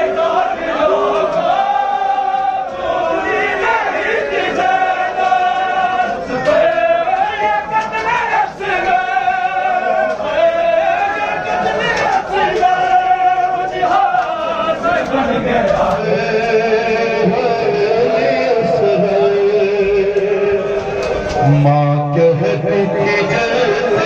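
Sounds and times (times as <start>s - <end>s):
men singing a lament in unison: 0.0s - 24.0s.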